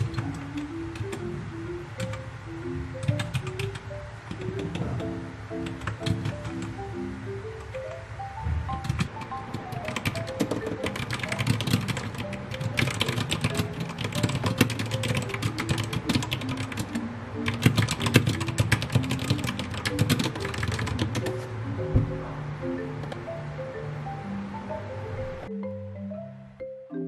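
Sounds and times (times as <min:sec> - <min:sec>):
mechanical keyboard typing: 0:00.0 - 0:01.3, 0:02.0 - 0:02.3, 0:03.0 - 0:06.9, 0:08.6 - 0:21.4
mellow background song: 0:00.0 - 0:27.0.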